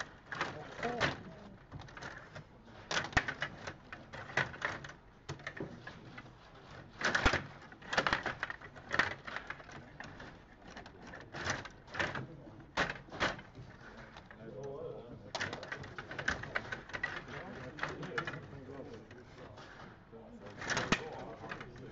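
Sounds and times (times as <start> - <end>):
plastic players sliding on metal rods: 0.0 - 21.9
puck clicking and clattering: 0.0 - 21.9.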